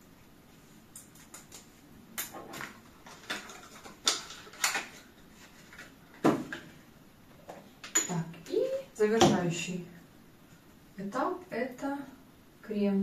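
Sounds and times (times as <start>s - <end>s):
plastic bottles clicking and knocking: 2.5s - 5.0s.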